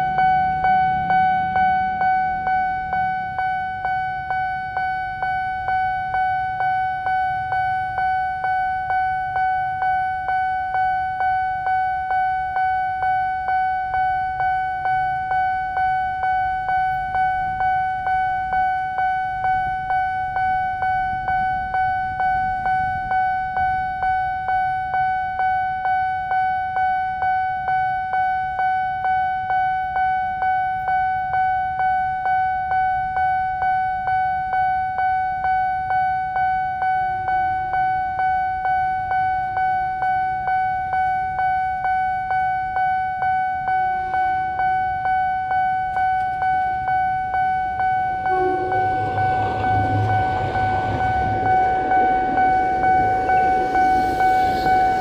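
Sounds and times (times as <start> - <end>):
low rumble: 47.9 - 55.0.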